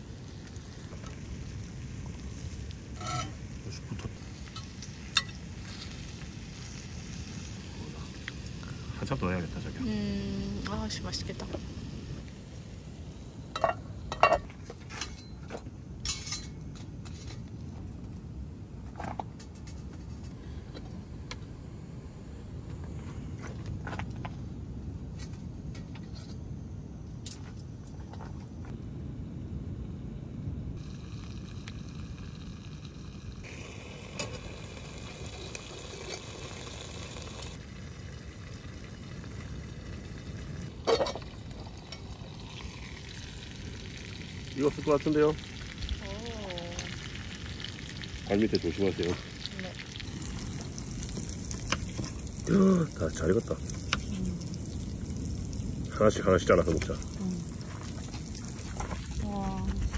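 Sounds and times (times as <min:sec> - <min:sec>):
meat sizzling in a pot: 0:00.0 - 0:14.5, 0:30.8 - 0:59.9
metal lid clinking on pot: 0:03.0 - 0:03.4, 0:13.6 - 0:15.4, 0:16.0 - 0:17.3
rough scrape: 0:03.0 - 0:03.4.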